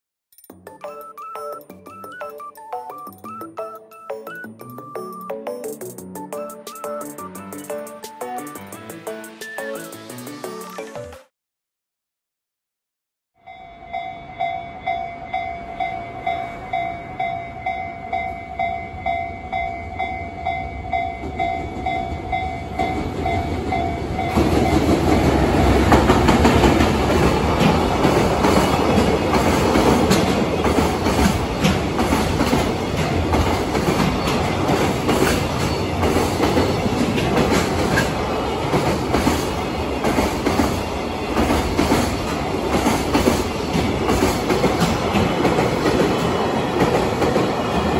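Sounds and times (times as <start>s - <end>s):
level-crossing alarm ringing: 0.7s - 8.7s
freight train rushing past: 13.8s - 47.9s
train wheels clattering on rails: 21.0s - 47.9s.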